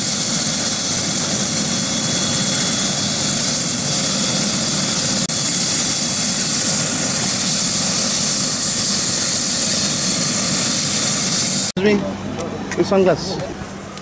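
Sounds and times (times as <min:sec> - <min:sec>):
helicopter rotor and engine noise: 0:00.0 - 0:14.0
helicopter turbine whine: 0:00.0 - 0:14.0.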